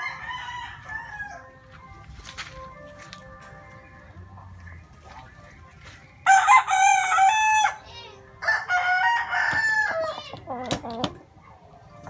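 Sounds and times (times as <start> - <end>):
rooster crowing: 0.0 - 1.5, 6.3 - 7.8, 8.4 - 10.2.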